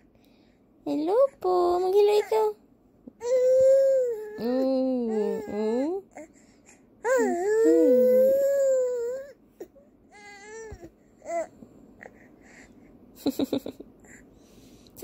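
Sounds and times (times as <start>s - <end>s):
baby whining cry: 3.2s - 6.3s, 7.0s - 11.5s
baby fussy whimpers: 7.0s - 9.4s.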